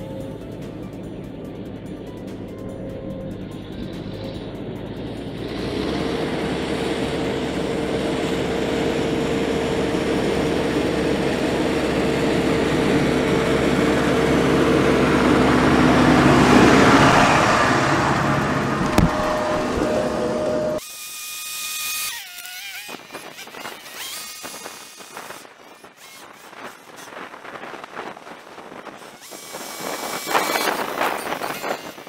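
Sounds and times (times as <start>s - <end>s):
tractor diesel engine running: 0.0s - 20.8s.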